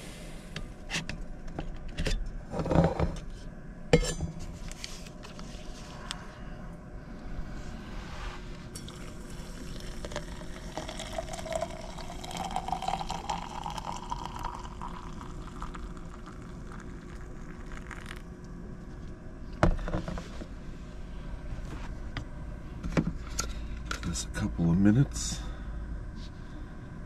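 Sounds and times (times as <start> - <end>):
hot water pouring into mug: 8.8 - 18.2.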